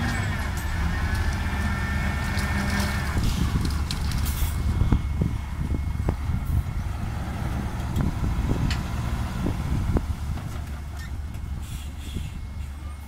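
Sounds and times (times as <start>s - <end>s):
diesel truck engine rumbling: 0.0s - 13.0s.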